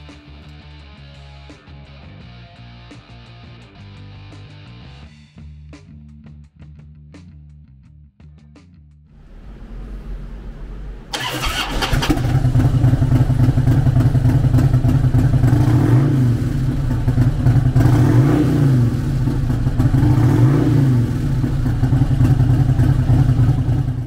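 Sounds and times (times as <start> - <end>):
engine revving: 9.2 - 24.0
motorcycle engine idling: 11.1 - 24.0.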